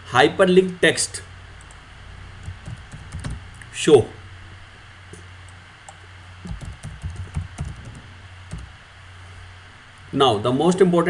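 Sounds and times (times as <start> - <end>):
steady low hum: 0.0 - 11.0
keyboard key clicks: 2.5 - 3.4.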